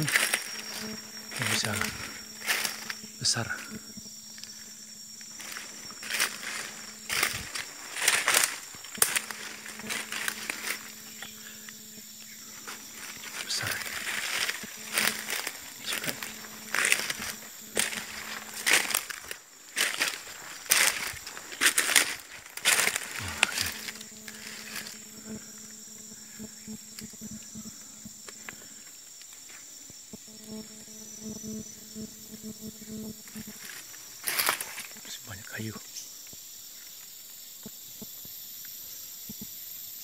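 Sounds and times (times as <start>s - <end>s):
footsteps on dry leaves: 0.0s - 3.0s, 5.2s - 11.2s, 12.5s - 25.0s, 33.3s - 35.1s
faint low hum: 0.0s - 29.0s
high insect drone: 0.0s - 40.0s
faint ticks: 21.7s - 30.6s, 35.8s - 39.8s.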